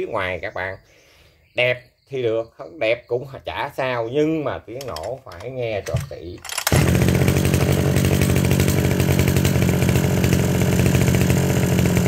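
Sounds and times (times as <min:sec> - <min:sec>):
brushcutter engine idling: 0:04.8 - 0:12.0.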